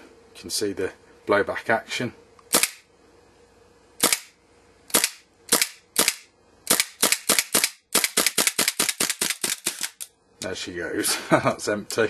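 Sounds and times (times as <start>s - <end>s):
airsoft pistol shots: 2.5s - 2.8s, 4.0s - 4.3s, 4.9s - 9.9s.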